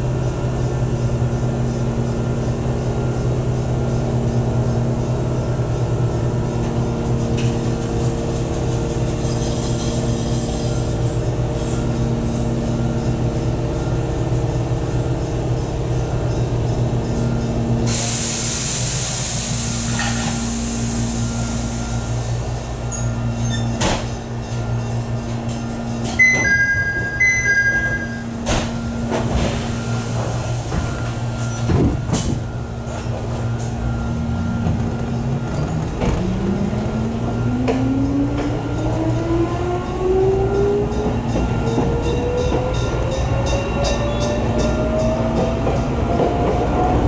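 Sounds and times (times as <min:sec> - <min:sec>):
air hiss: 0:17.9 - 0:21.3
high-low door chime: 0:26.2 - 0:28.9.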